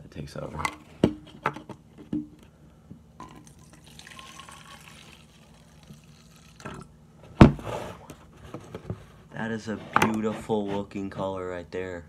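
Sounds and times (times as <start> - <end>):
liquid trickling into bottle: 3.2 - 6.9.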